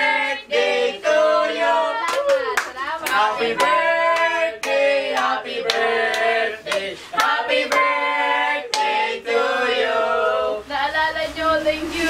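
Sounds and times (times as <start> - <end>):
young voices singing together: 0.0 - 12.0
hand claps: 2.0 - 7.9, 8.7 - 8.9.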